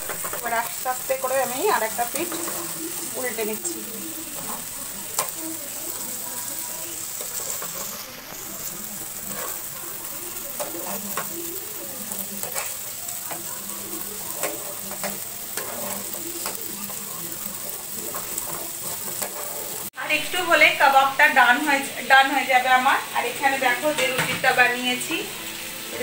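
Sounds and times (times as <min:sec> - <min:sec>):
spatula scraping and tapping pan: 0:00.0 - 0:19.9
chicken sizzling in oil: 0:00.0 - 0:26.0.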